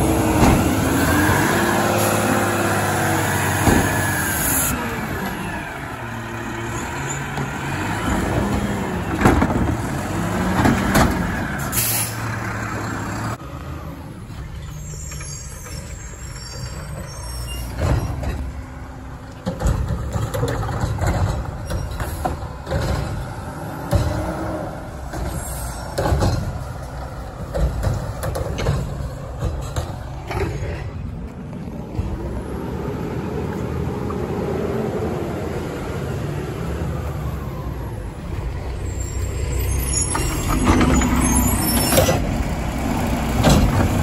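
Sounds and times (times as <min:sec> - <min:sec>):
diesel truck engine rumbling: 0:00.0 - 0:44.0
metal clanks and bangs: 0:19.4 - 0:31.2.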